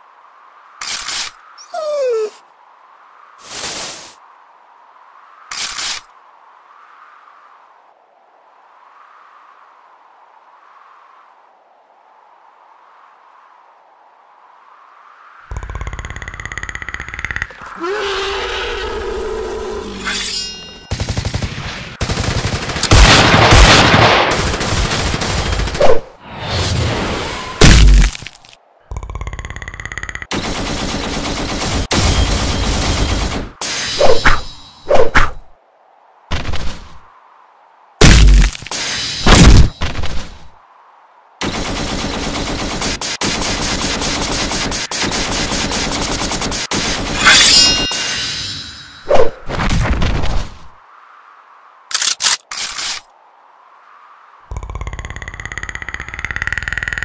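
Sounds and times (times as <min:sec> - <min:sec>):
machine-gun fire: 0:20.9 - 0:25.8, 0:41.4 - 0:47.1.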